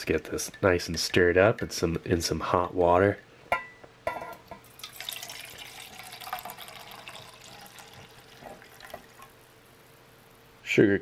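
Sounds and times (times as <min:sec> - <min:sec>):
tea pouring into metal cup: 0:04.6 - 0:09.4.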